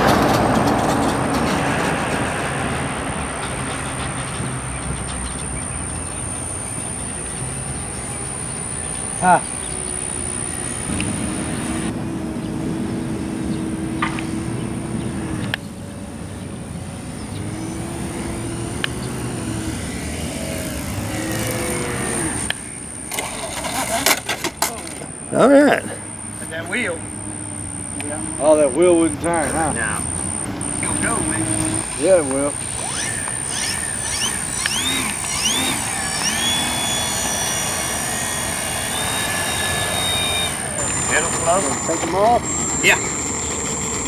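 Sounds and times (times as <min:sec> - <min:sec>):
model plane motor whining: 0:06.4 - 0:11.9, 0:17.5 - 0:24.3, 0:26.1 - 0:44.0.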